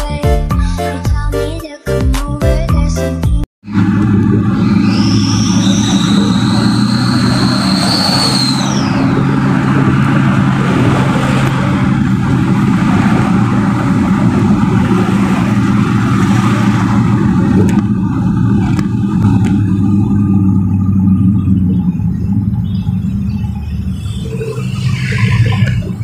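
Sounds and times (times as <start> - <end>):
road noise: 3.6 - 26.0
truck engine running: 3.6 - 26.0
high tone: 3.8 - 9.8.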